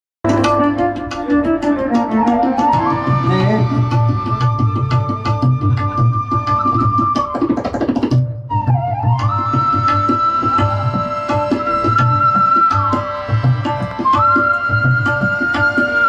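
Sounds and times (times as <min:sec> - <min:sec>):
melody instrument gliding notes: 0:00.2 - 0:07.2
tabla strokes: 0:00.2 - 0:16.0.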